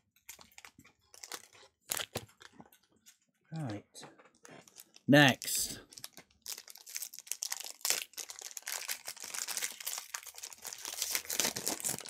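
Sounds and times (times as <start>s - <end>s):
foil wrapper crinkling: 0.3s - 2.5s, 4.6s - 5.1s, 5.8s - 12.0s.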